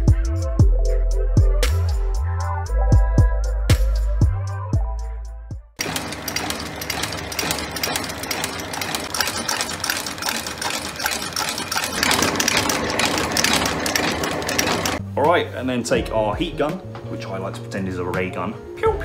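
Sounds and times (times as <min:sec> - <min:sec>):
stitching machine clattering: 0:05.8 - 0:15.0.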